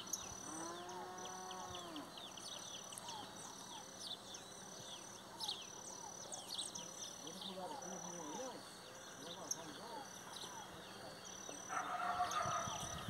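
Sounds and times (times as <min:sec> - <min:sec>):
small birds chirping: 0:00.0 - 0:13.0
cow mooing: 0:00.5 - 0:02.1.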